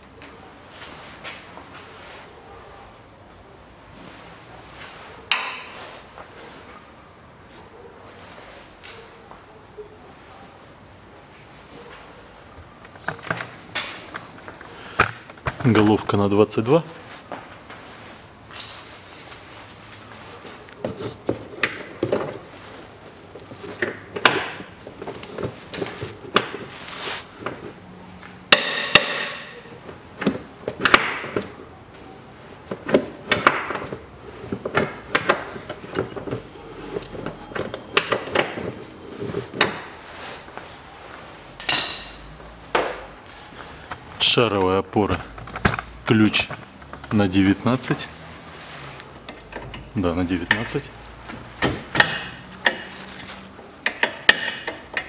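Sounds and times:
wrench clicking and clanking: 53.8 - 55.0.

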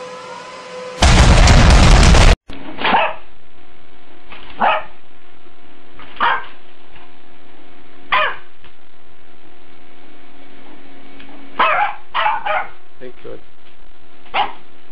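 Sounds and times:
loud harsh noise: 0.0 - 2.4
faint steady hum: 0.0 - 14.9
dog barking: 2.8 - 3.3, 4.6 - 5.0, 6.2 - 6.6, 8.1 - 8.5, 11.6 - 12.8, 14.3 - 14.7.

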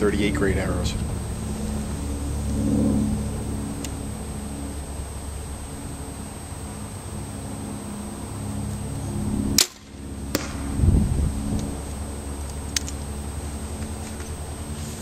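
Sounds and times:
arrow dull thud: 9.6 - 10.8.

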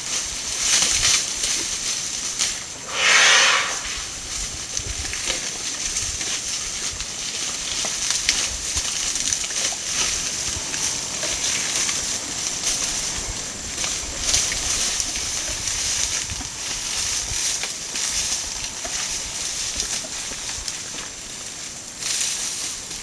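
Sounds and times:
dry leaves rustling and crackling: 0.0 - 2.8, 4.2 - 23.0
steady high-pitched hiss: 0.0 - 23.0.

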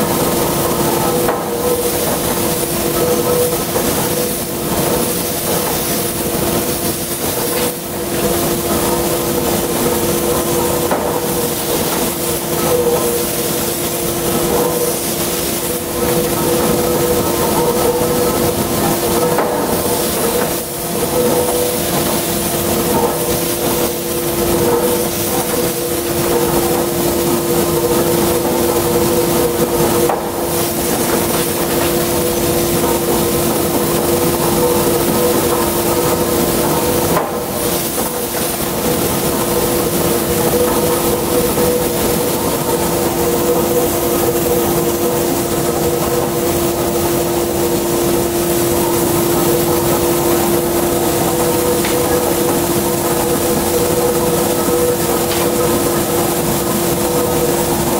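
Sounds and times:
machinery hiss: 0.0 - 57.9.

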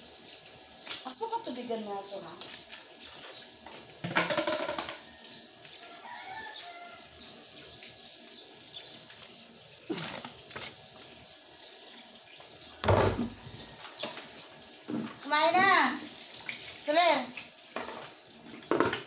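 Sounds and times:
water running from hose: 0.0 - 19.0
plastic basin thump: 4.0 - 5.0, 12.8 - 13.6, 18.7 - 19.0.

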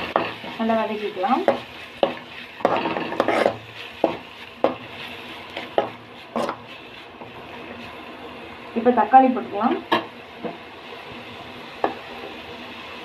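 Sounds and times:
metal spoon scraping pan: 0.0 - 6.8
onions frying in oil: 0.0 - 13.0.

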